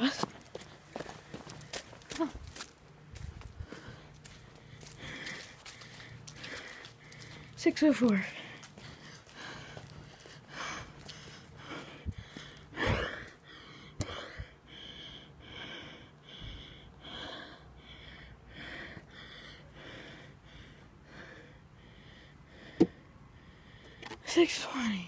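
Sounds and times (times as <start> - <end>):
footsteps: 0.0 - 12.6
person breathing: 3.4 - 7.6, 8.3 - 24.2.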